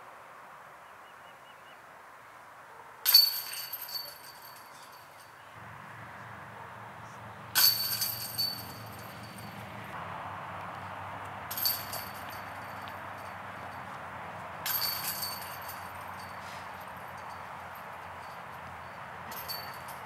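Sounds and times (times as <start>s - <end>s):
disc hitting metal chains: 3.1s - 5.4s, 7.6s - 9.6s, 11.5s - 13.3s, 14.6s - 20.0s.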